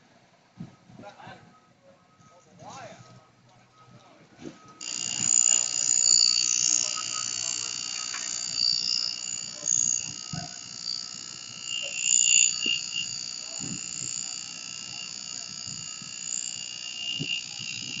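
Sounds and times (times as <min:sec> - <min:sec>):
high-pitched warning alarm: 0:04.8 - 0:18.0.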